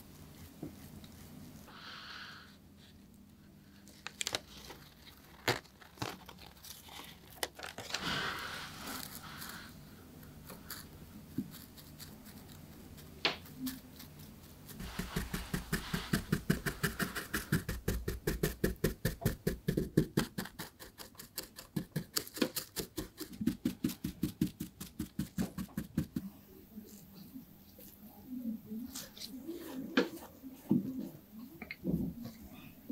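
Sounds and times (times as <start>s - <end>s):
brush scratching over foil: 7.9s - 9.9s, 10.5s - 26.2s.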